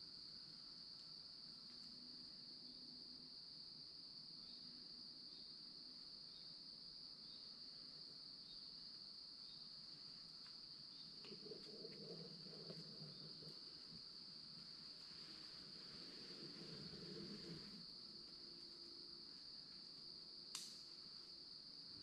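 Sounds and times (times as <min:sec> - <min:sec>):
insects droning: 0:00.0 - 0:22.0
soft low rustle: 0:09.9 - 0:20.1.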